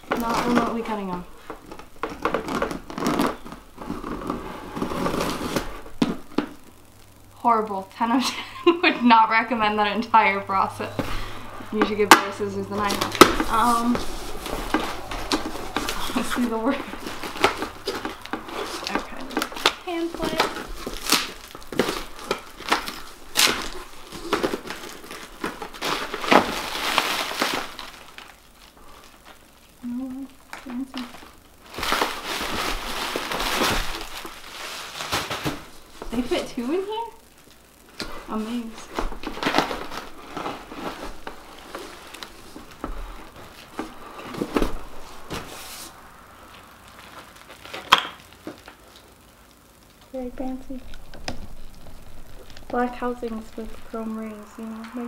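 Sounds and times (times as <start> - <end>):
crinkling plastic: 0.0 - 7.4, 8.0 - 55.0
sharp cardboard cracks: 1.4 - 6.9, 11.8 - 28.6, 46.9 - 49.2.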